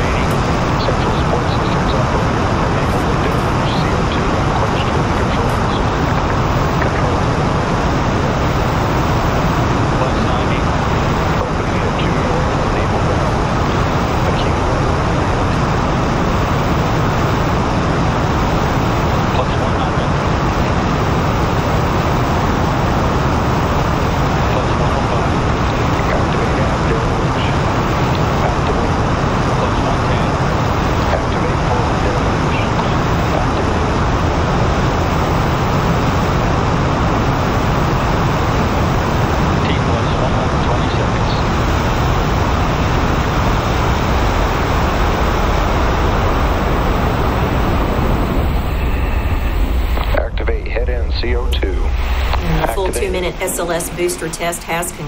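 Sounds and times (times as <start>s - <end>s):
rocket booster roaring: 41.1s - 54.5s.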